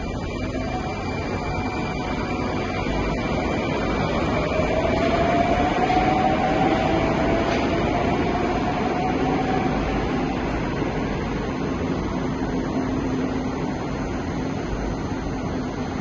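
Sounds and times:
train rumble with motor whine: 0.0 - 16.0.

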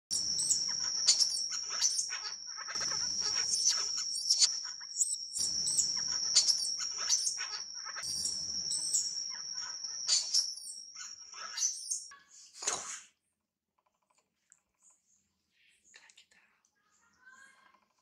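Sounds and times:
baby monkey squealing: 0.1 - 12.0
steady high-pitched drone: 0.1 - 12.1.

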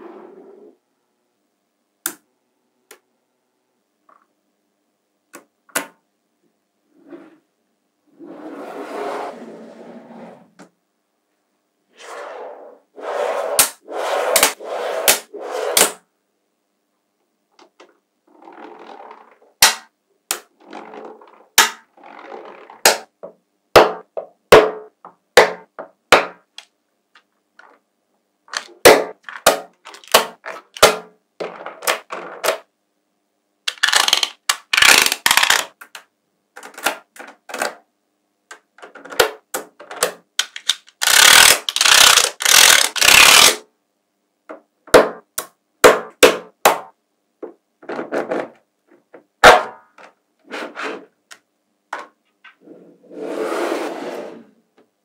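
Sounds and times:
magnet balls scraping: 11.9 - 16.0, 40.9 - 43.6
magnet balls clicking together: 33.7 - 36.0, 40.4 - 43.6.

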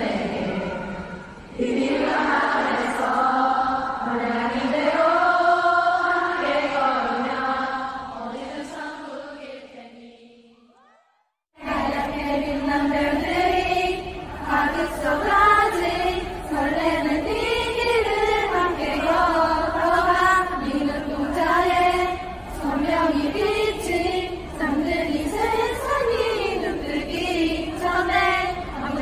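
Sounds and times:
crowd singing in unison: 0.0 - 10.6, 11.6 - 29.0.

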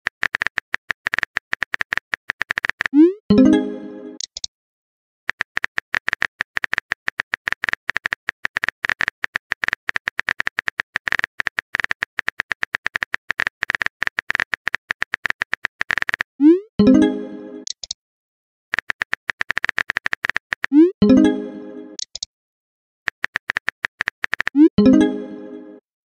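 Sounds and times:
keyboard typing clicks: 0.1 - 3.6, 4.2 - 4.5, 5.3 - 16.3, 17.0 - 18.0, 18.7 - 21.3, 22.0 - 22.3, 23.1 - 25.1.

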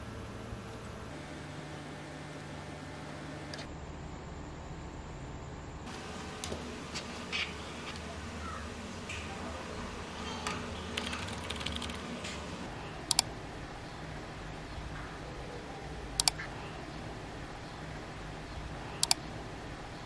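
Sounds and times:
computer mouse double clicks: 16.2 - 16.4, 19.0 - 19.2.

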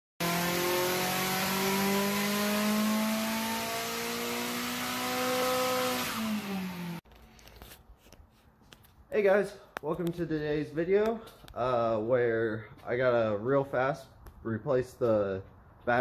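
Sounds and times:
car engine accelerating: 0.2 - 7.0.

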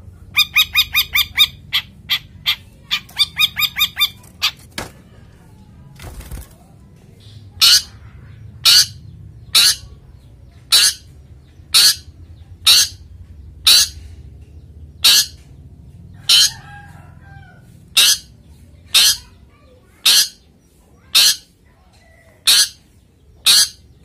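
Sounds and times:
bird giving harsh calls: 0.3 - 4.7, 7.6 - 14.2, 15.0 - 15.5, 16.2 - 16.9, 17.9 - 21.6, 22.4 - 24.0.

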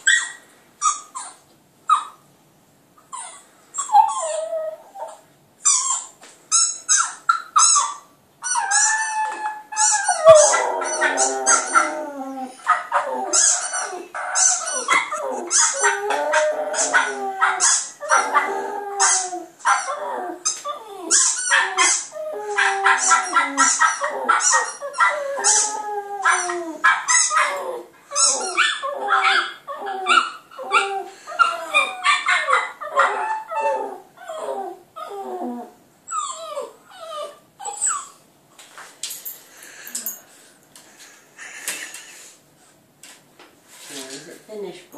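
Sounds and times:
puppy howling and yipping: 3.2 - 6.2, 6.9 - 38.2.

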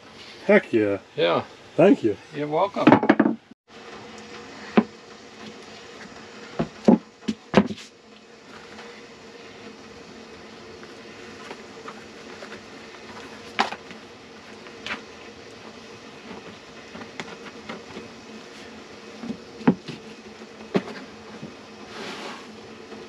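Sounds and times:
steady buzzing hum: 0.0 - 23.0
boots knocking on plywood floor: 6.6 - 7.8.

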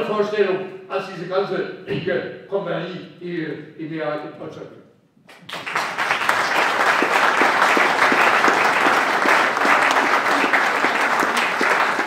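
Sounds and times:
audience applause: 5.4 - 12.0.

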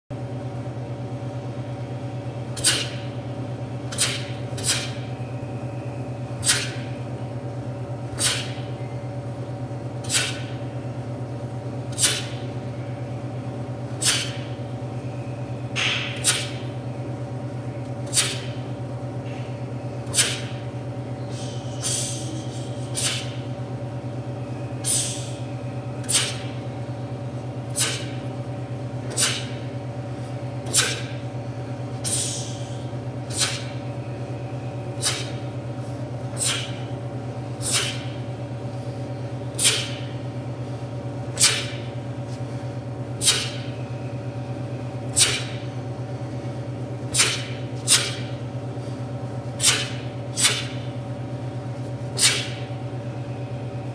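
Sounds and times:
steady low hum: 0.1 - 53.9
uniform snapping: 52.2 - 52.5.

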